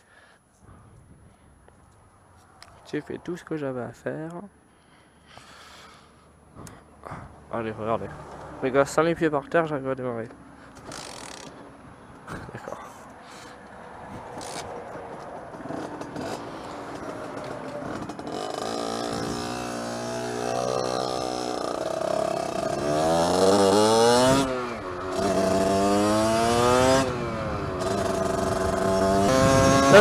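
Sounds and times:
wind and road noise: 0.5s - 30.0s
motorcycle engine revving: 13.4s - 30.0s.

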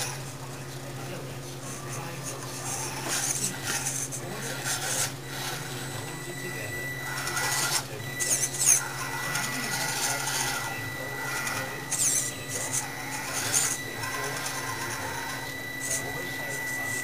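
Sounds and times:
electric motor and gears whining: 0.0s - 17.0s.

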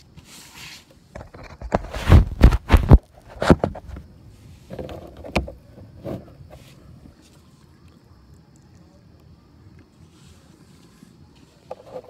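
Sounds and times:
faint hiss: 0.0s - 1.2s, 4.0s - 5.3s, 6.2s - 12.0s
knocks and thumps in a kayak: 1.2s - 4.1s, 4.7s - 6.6s.

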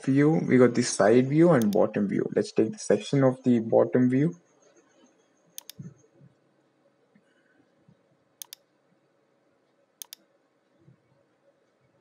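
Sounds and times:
computer mouse clicking: 1.6s - 1.9s, 5.6s - 5.9s, 8.4s - 8.7s, 10.0s - 10.3s.

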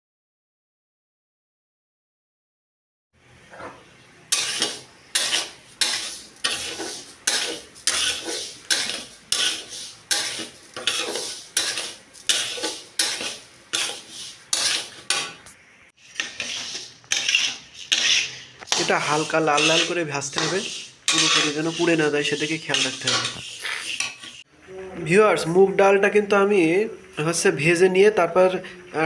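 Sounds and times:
metal spatula scraping a pan: 3.5s - 24.5s
lentils rustling in a pan: 4.3s - 24.5s.

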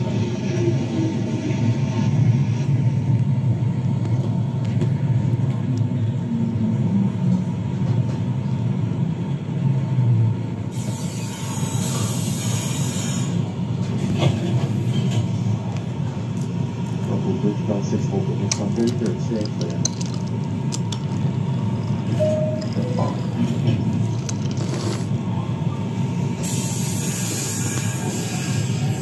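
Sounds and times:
toy train rolling on wooden track: 18.5s - 21.2s, 24.0s - 25.1s.

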